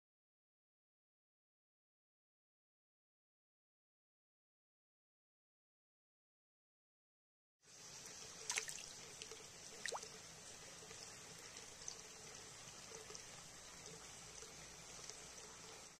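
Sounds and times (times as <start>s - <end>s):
water trickling in a pond: 7.6s - 15.9s.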